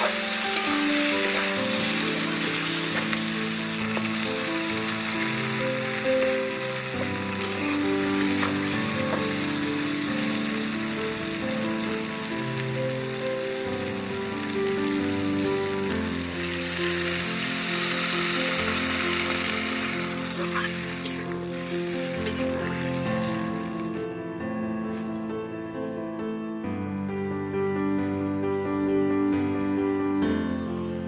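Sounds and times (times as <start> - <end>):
food sizzling in oil: 0.0 - 24.0
slow melodic background music: 0.0 - 31.0.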